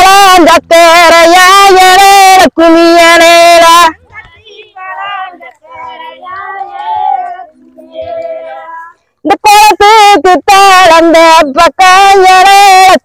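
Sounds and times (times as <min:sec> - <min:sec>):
women singing unaccompanied: 0:04.1 - 0:09.0.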